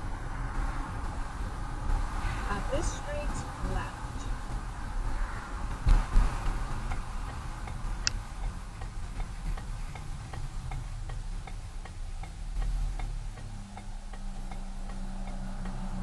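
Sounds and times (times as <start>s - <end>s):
road and engine rumble: 0.0s - 16.0s
turn signal clicking: 5.7s - 16.0s.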